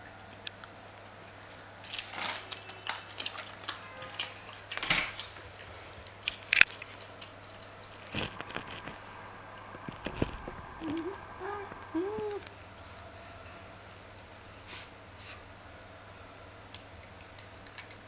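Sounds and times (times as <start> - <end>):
cat chewing with wet crunches: 0.1 - 12.8, 16.2 - 18.0.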